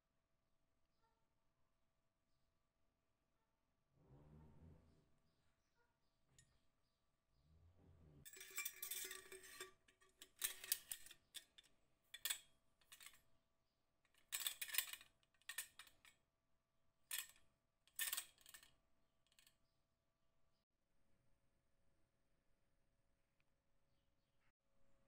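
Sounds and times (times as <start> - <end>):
steel tool scraping and clicking: 8.3 - 13.2, 14.1 - 16.1, 17.1 - 18.7.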